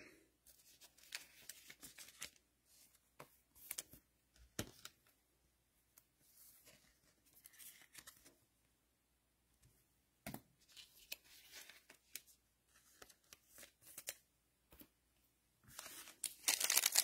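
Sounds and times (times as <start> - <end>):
plastic sleeve rustle: 15.7 - 17.0.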